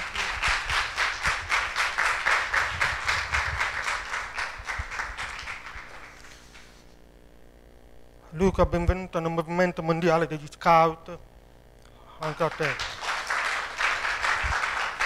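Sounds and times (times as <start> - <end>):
audience applauding: 0.0 - 6.7, 12.2 - 15.0.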